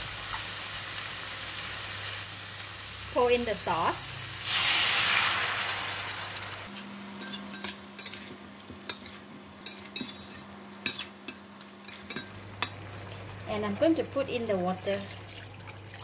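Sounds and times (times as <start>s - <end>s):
sauce sizzling in a wok: 0.0s - 7.3s.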